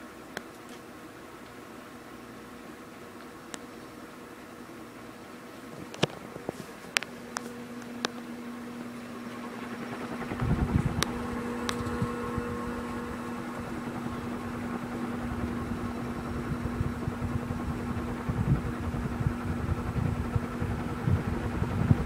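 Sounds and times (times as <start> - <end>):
ceiling fan motor hum: 0.0 - 22.0
wind buffeting microphone: 10.0 - 22.0.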